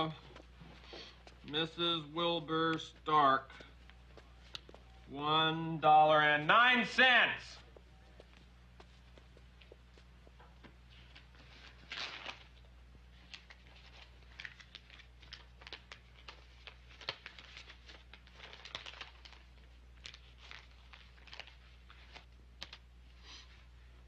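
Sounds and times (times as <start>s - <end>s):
steady low hum: 0.0s - 24.0s
paper rustling and crinkling: 10.9s - 23.6s.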